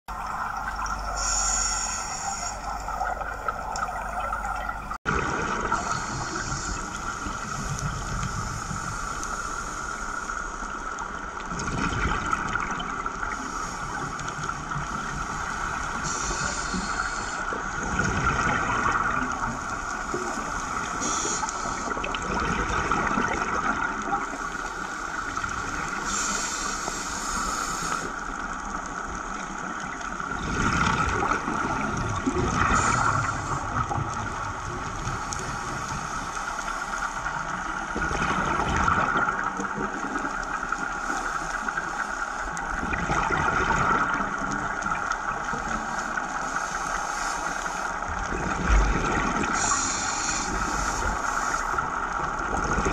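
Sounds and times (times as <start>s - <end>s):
regulator bubbling: 0.1s - 9.2s
steady underwater hiss: 0.1s - 52.9s.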